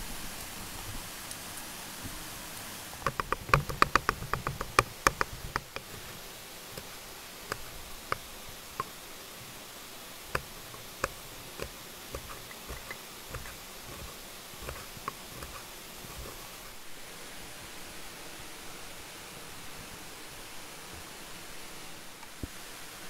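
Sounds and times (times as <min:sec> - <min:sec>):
knife chopping on wooden board: 0:10.4 - 0:16.4.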